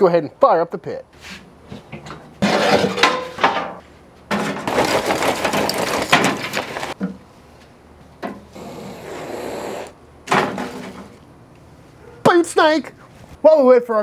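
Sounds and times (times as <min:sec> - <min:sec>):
charcoal clattering into metal: 0:02.4 - 0:07.0.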